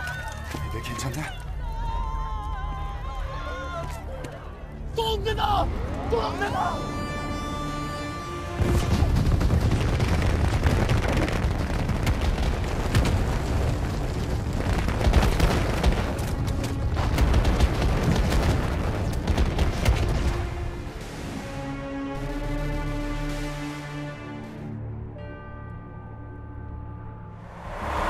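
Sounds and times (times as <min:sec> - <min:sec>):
deep rumble: 0:08.6 - 0:21.4, 0:27.4 - 0:28.0
rapid blasts and impacts: 0:08.6 - 0:21.5.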